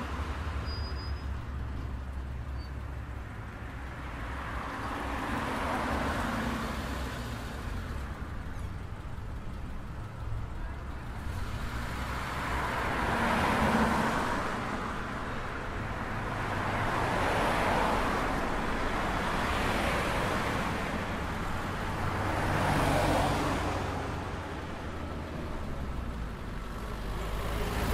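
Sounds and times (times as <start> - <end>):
cars passing: 0.0 - 27.9
low traffic rumble: 0.0 - 27.9.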